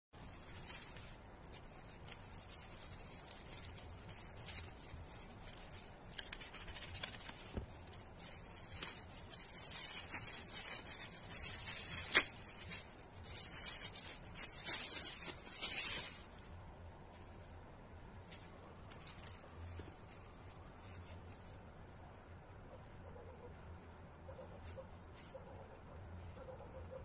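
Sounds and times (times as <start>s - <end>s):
plastic bag tearing: 0.2s - 16.4s
plastic packaging crinkling: 0.2s - 16.6s.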